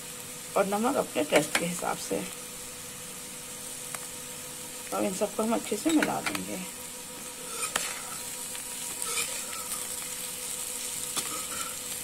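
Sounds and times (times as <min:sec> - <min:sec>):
potatoes sizzling in hot oil: 0:00.0 - 0:12.0
spatula scraping pan: 0:07.3 - 0:10.2, 0:10.8 - 0:12.0.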